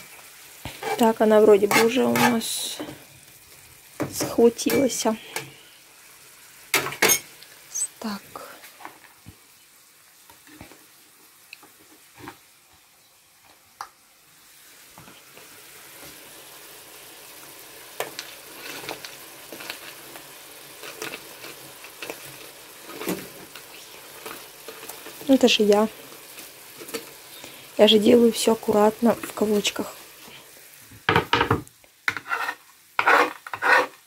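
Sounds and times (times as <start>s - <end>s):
meat sizzling in a frying pan: 0.0s - 34.0s
knife scrapes: 32.1s - 34.0s.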